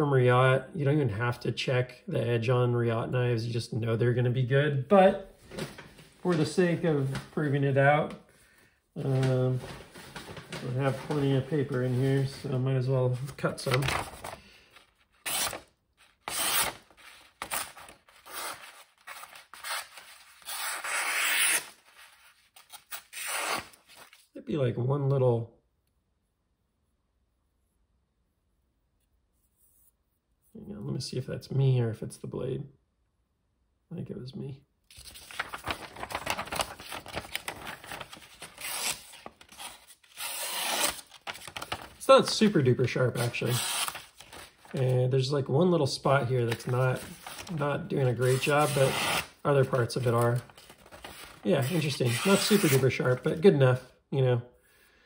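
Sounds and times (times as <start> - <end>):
knife slicing through paper: 35.0 - 41.9, 43.2 - 44.8.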